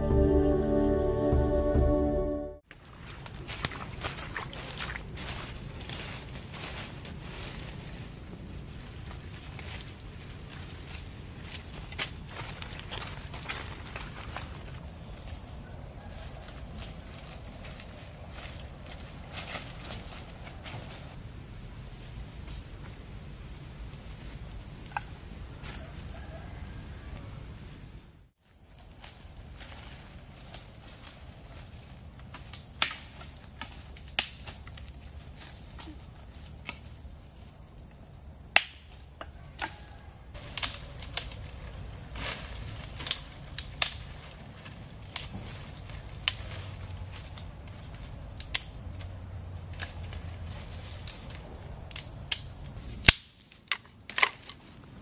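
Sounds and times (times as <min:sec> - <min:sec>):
insects droning: 0:00.0 - 0:55.0
twigs snapping: 0:32.2 - 0:35.0, 0:40.4 - 0:49.1, 0:50.8 - 0:54.6.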